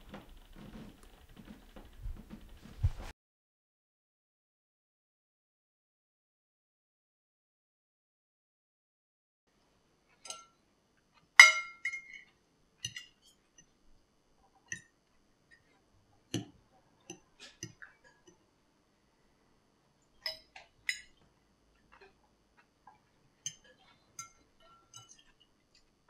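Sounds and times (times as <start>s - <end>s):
cutlery clinking against plates: 10.2s - 10.6s, 11.4s - 13.7s, 20.2s - 21.2s, 23.5s - 25.5s.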